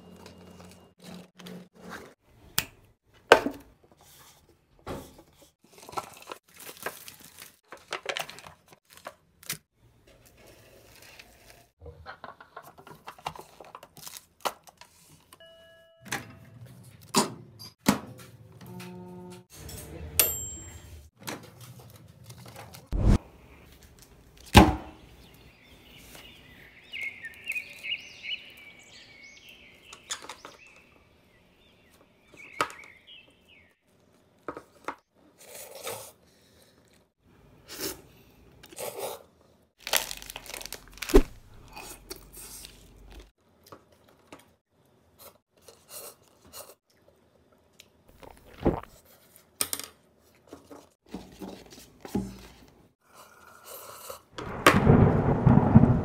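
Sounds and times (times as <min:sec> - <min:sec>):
wrappers rustling: 0:05.7 - 0:09.4, 0:39.8 - 0:41.8.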